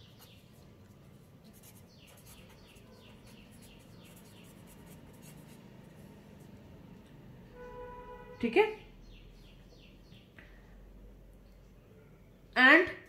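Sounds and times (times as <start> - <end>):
pen scratching on paper: 1.4 - 6.0.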